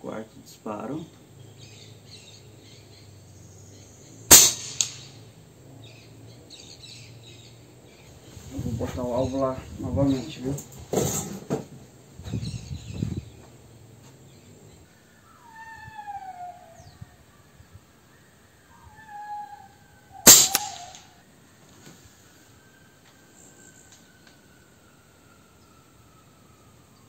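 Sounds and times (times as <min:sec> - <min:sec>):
air rifle shot: 0:04.3 - 0:05.3, 0:20.2 - 0:21.1
meow-like animal calls: 0:15.2 - 0:17.3, 0:18.7 - 0:21.2
faint high whistle: 0:22.2 - 0:24.5.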